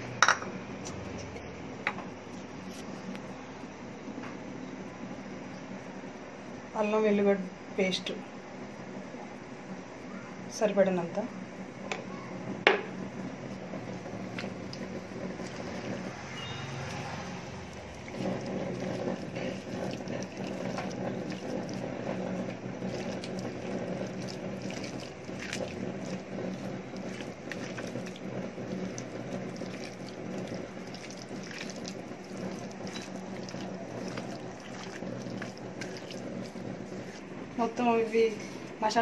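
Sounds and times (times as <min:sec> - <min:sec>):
steady hum: 0:00.0 - 0:39.0
wet squelches of hand mixing: 0:13.5 - 0:38.9.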